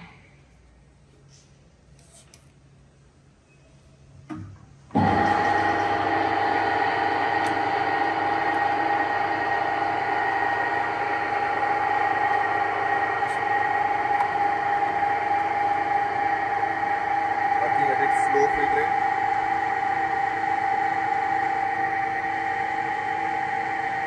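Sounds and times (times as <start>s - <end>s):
lathe humming with high whine: 4.9s - 24.0s.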